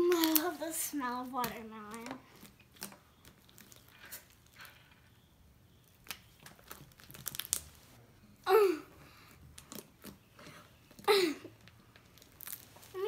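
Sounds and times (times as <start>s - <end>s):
slime sticky crackles and pops: 5.8s - 7.9s, 10.9s - 13.0s.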